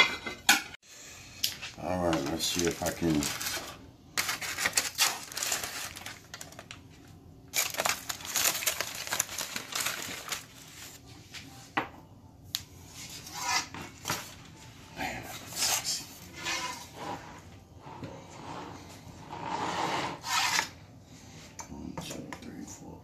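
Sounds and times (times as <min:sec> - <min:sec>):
aluminium foil crinkling: 0:01.8 - 0:11.0.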